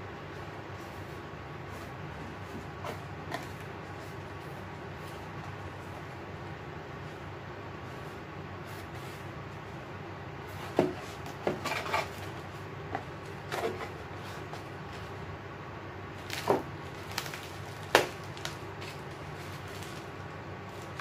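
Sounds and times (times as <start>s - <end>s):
electric fan running: 0.0s - 21.0s
packages being handled: 0.4s - 6.2s, 16.1s - 21.0s.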